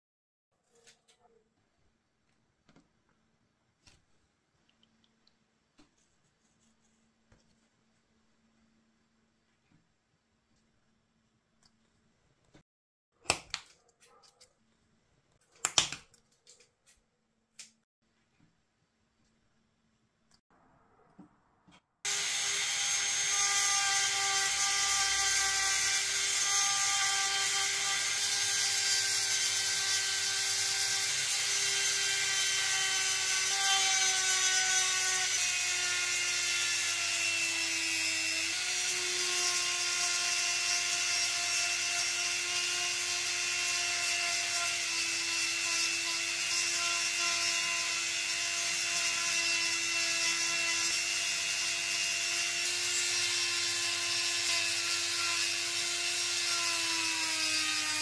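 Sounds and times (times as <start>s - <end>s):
electric rotary tool humming: 22.1s - 58.0s.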